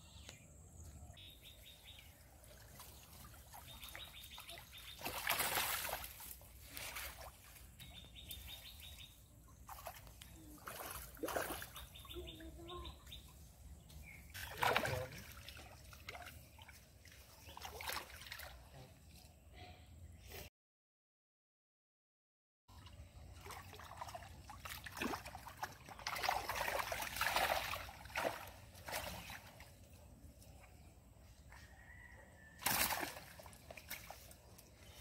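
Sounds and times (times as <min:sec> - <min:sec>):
water splashing and sloshing: 0:01.6 - 0:18.8, 0:22.7 - 0:30.8, 0:32.5 - 0:35.0.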